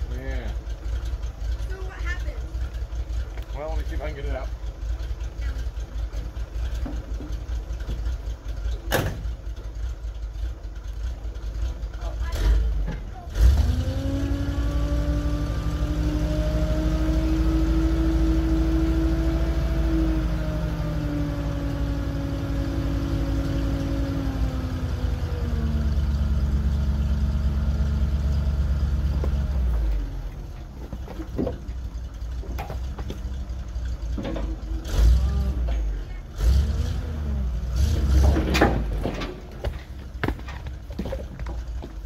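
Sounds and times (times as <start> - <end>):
truck engine revving: 0.0 - 41.8
firewood sliding and knocking: 29.1 - 31.8.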